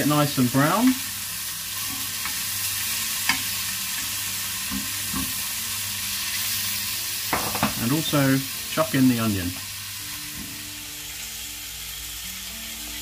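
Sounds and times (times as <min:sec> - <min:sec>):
sausages sizzling in frying pan: 0:00.0 - 0:13.0
low knocks in pan: 0:07.3 - 0:07.8.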